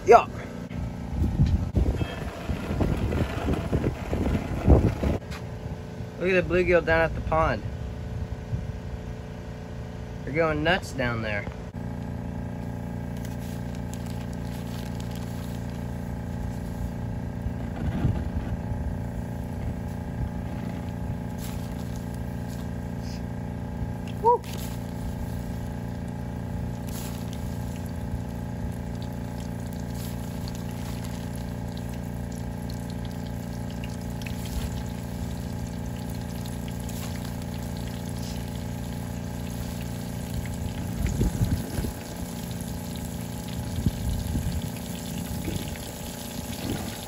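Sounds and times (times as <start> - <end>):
gas burner low rumble: 0.0 - 47.0.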